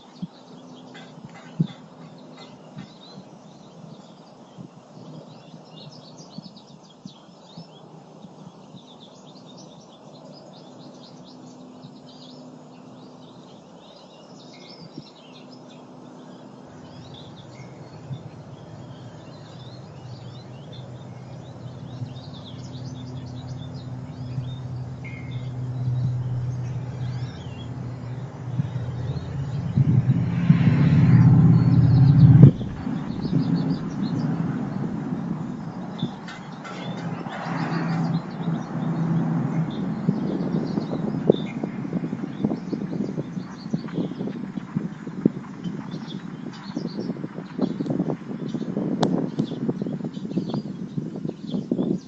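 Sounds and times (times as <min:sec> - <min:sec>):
songbirds chirping: 0:00.0 - 0:52.0
low vehicle rumble: 0:15.9 - 0:51.1.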